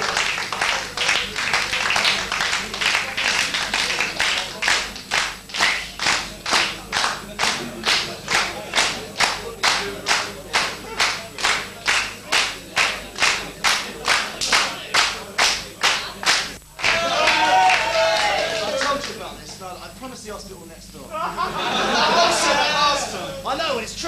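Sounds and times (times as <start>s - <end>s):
audience slow handclap: 0.0s - 19.2s.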